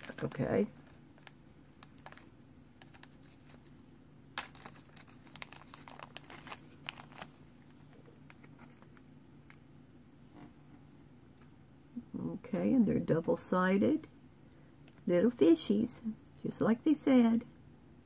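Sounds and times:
plastic bag crinkling: 0:00.0 - 0:09.6.

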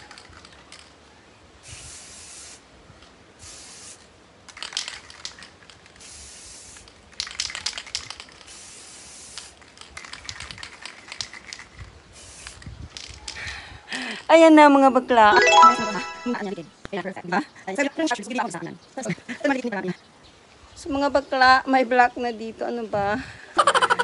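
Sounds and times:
spray can hissing: 0:01.7 - 0:02.6, 0:03.4 - 0:04.1, 0:05.9 - 0:07.4, 0:08.3 - 0:09.8, 0:12.2 - 0:12.6
spray can rattling clicks: 0:04.5 - 0:13.2.

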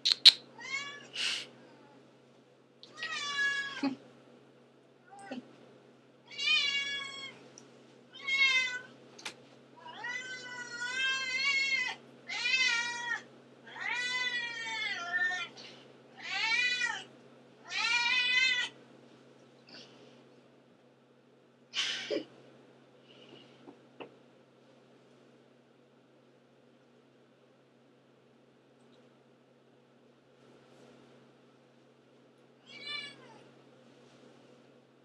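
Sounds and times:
sharp click: 0:00.0 - 0:00.4
cat meowing: 0:00.6 - 0:01.1, 0:02.9 - 0:03.8, 0:06.3 - 0:07.4, 0:08.1 - 0:08.9, 0:09.8 - 0:15.5, 0:16.2 - 0:18.7, 0:32.6 - 0:33.4.

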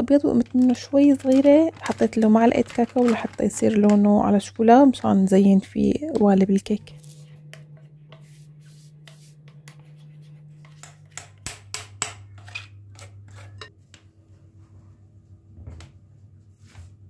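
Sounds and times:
steady low hum: 0:00.0 - 0:17.0
utensil scraping a bowl: 0:06.2 - 0:11.4, 0:12.0 - 0:13.7.

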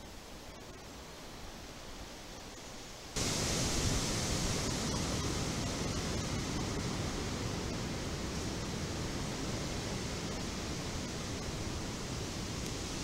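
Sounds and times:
wind noise: 0:03.2 - 0:13.0.

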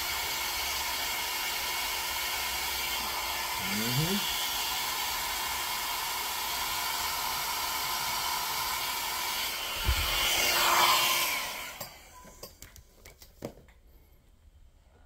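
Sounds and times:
blow dryer running: 0:00.0 - 0:12.5.

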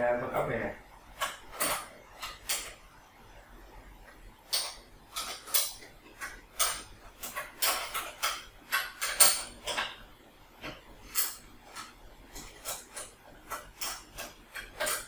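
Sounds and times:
spanner clicking on metal nuts: 0:11.1 - 0:15.0.

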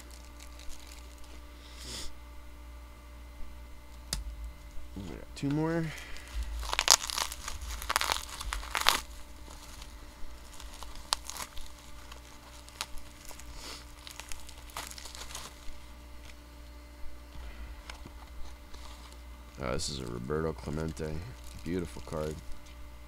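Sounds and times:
plastic wrapping crinkling and tearing: 0:00.0 - 0:01.5, 0:05.9 - 0:16.5, 0:17.4 - 0:22.8.

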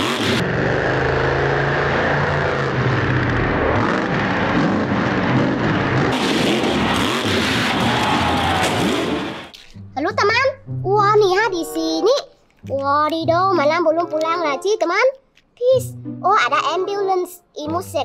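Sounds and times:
truck engine revving: 0:00.0 - 0:09.5.

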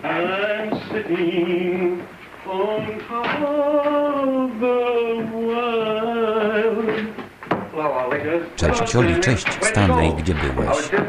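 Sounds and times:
man singing with vibrato: 0:08.6 - 0:11.0.

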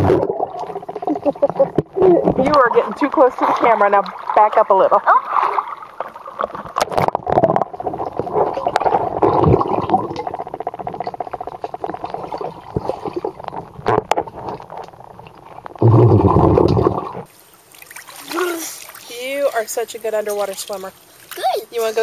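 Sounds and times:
underwater clicks: 0:00.0 - 0:04.3, 0:06.0 - 0:17.3
muffled underwater water rush: 0:00.0 - 0:21.2.

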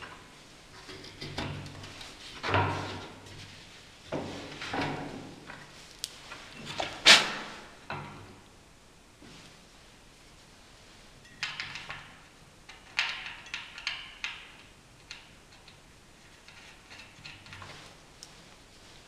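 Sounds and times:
metal bracket and bolts clicking on wood: 0:11.3 - 0:15.8.

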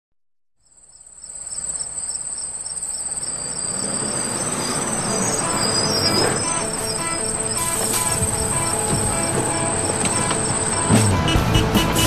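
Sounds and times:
high pulsing trill: 0:02.9 - 0:12.0.

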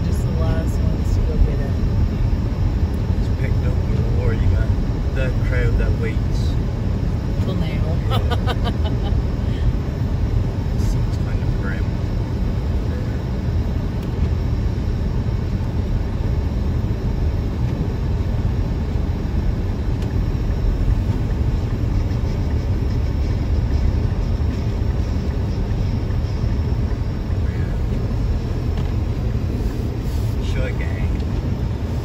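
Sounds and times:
car cabin engine and tyre rumble: 0:00.0 - 0:32.0.

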